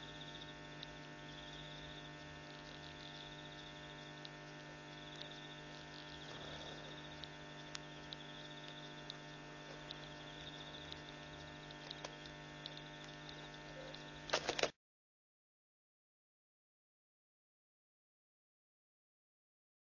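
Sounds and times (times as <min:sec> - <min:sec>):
faint high pulsing trill: 0:00.0 - 0:14.4
electrical mains hum: 0:00.0 - 0:14.8
small clicks: 0:00.1 - 0:14.8.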